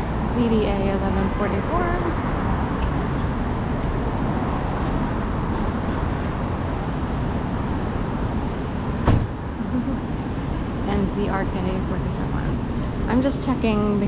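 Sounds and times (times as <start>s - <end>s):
traffic rumble: 0.0s - 14.0s
sharp knock: 9.0s - 9.3s.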